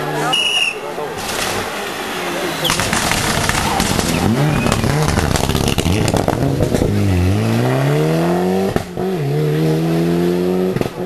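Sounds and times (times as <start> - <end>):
engine crackles: 1.2 - 7.7
rally car engine accelerating: 2.7 - 11.0.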